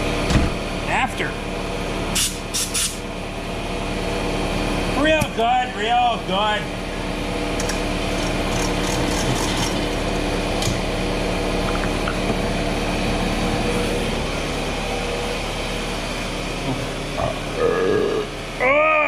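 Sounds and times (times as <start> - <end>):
machine humming: 0.0 - 19.0.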